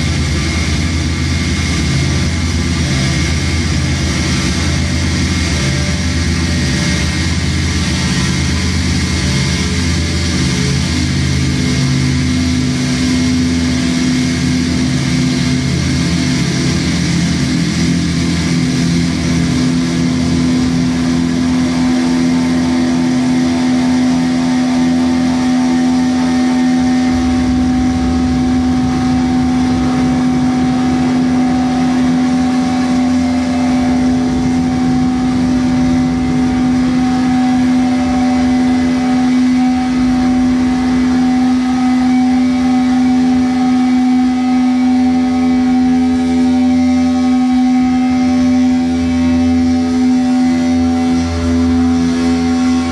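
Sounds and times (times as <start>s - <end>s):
deep rumble: 0.0s - 52.9s
dense wall of noise: 0.0s - 52.9s
low drone: 0.0s - 52.9s
high pulsing tone: 17.4s - 52.9s.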